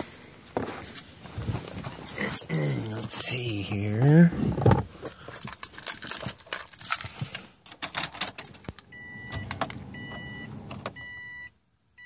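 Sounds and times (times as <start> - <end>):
keys jangling and clicking: 1.8 - 4.0, 5.0 - 8.9
dashboard warning chime beeping: 8.9 - 12.0.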